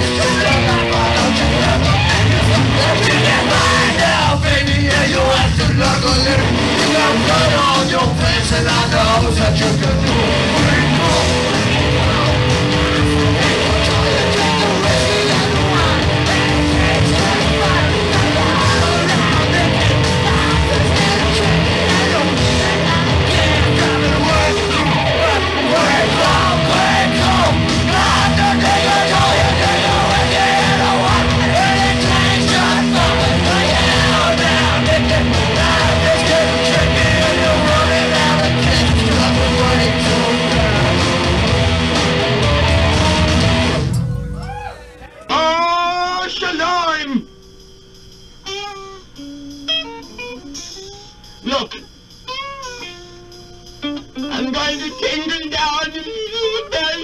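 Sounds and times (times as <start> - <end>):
person yelling singing: 0.0 - 41.6
electric guitar: 0.0 - 45.9, 48.3 - 57.0
rock band playing: 0.0 - 57.0.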